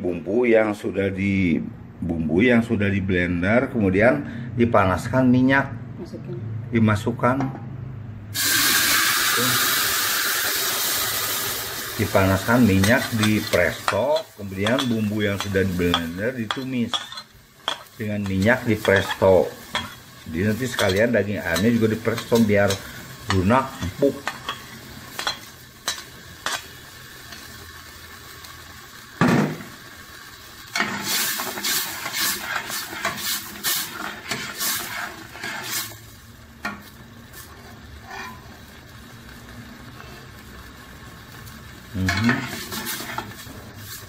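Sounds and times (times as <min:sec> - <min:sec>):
spice paste sizzling in oil: 0:08.4 - 0:44.0
spatula scraping metal pot: 0:30.8 - 0:36.0, 0:38.0 - 0:38.6, 0:42.1 - 0:44.0.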